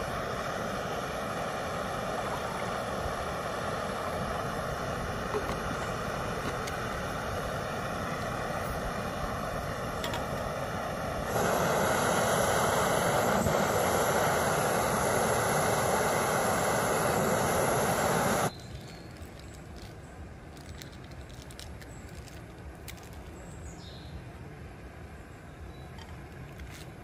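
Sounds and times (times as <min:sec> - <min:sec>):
gas camping stove hissing: 0:00.0 - 0:18.5.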